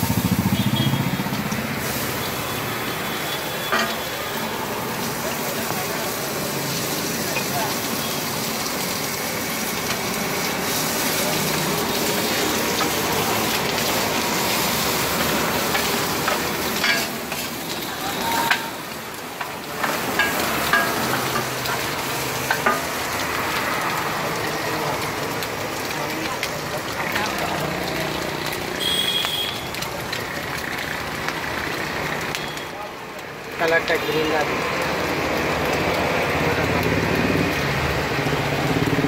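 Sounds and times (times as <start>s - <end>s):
egg sizzling on a griddle: 0.0s - 39.0s
metal spatula scraping griddle: 14.6s - 17.5s.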